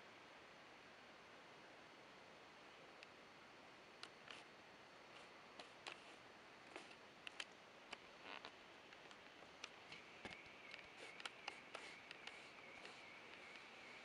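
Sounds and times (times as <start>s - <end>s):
faint sharp ticks: 3.0s - 3.2s, 6.6s - 14.0s
faint high steady trill: 9.6s - 14.0s.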